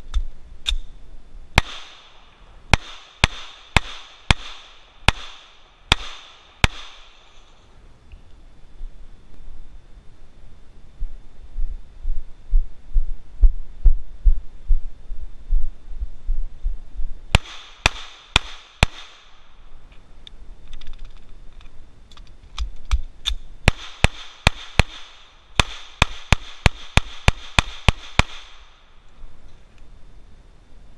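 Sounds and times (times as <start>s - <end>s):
pistol shots: 1.6s - 7.2s, 17.3s - 19.4s, 23.7s - 28.7s.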